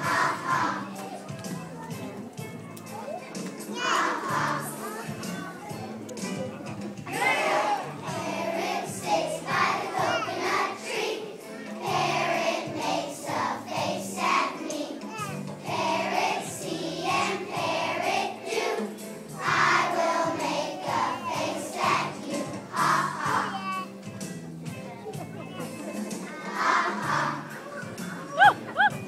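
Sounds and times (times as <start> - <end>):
children's choir singing: 0.0 - 1.6, 3.6 - 5.6, 7.1 - 23.8, 25.9 - 28.4
musical accompaniment with low notes: 0.0 - 29.0.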